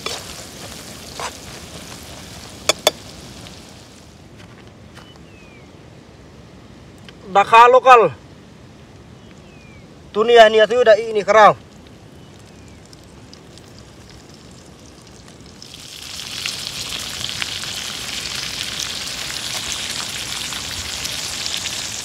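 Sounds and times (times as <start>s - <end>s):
food sizzling in hot oil: 0.0s - 4.1s, 12.1s - 22.0s.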